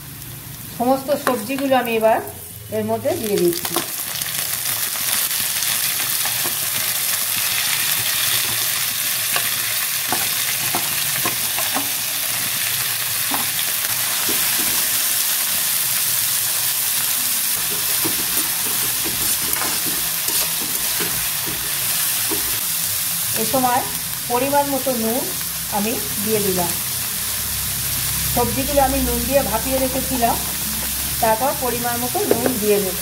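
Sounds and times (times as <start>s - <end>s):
vegetables sizzling in hot oil: 0.0s - 33.0s
spatula scraping a pan: 17.6s - 22.6s.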